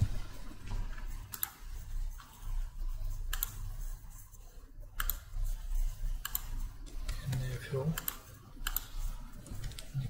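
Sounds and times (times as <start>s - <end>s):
computer mouse clicking: 1.2s - 2.4s, 3.3s - 3.8s, 5.0s - 5.6s, 6.2s - 10.0s.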